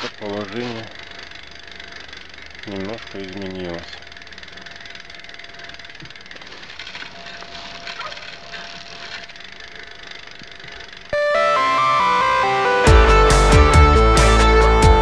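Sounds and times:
bicycle chain clicking rattle: 0.0 - 11.2.

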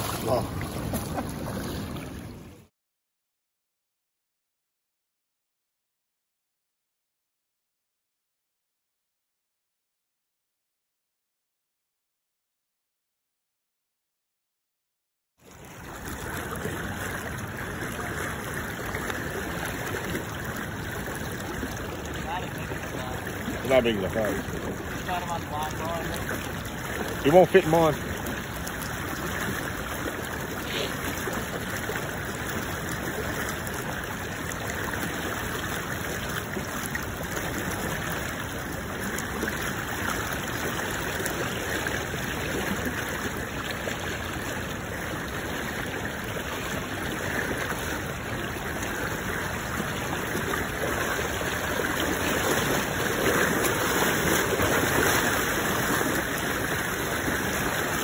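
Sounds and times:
river rushing over rapids: 28.6 - 58.0.

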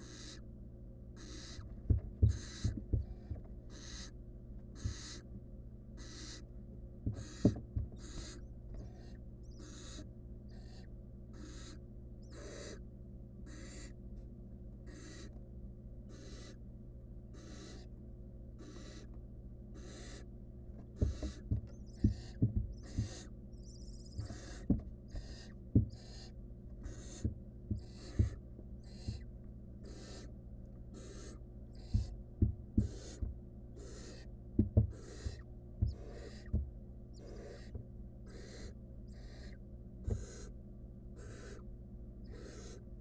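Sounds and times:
owl nestlings hissing calls: 0.0 - 0.4, 1.2 - 4.2, 4.8 - 5.3, 6.0 - 6.5, 7.1 - 12.8, 13.5 - 14.0, 14.9 - 15.3, 16.1 - 16.6, 17.3 - 17.9, 18.6 - 19.1, 19.8 - 20.3, 21.0 - 30.3, 30.9 - 32.2, 32.8 - 34.3, 34.9 - 40.6, 41.2 - 42.8
steady low hum: 0.0 - 43.0.

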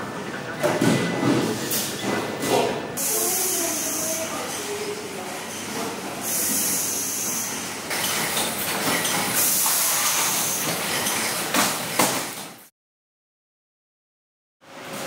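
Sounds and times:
factory machinery running: 0.0 - 12.7
loud high hiss: 3.0 - 4.4.

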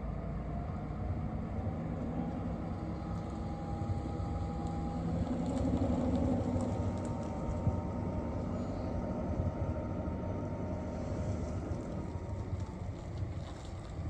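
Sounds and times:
distant diesel locomotive drone: 0.0 - 14.0.

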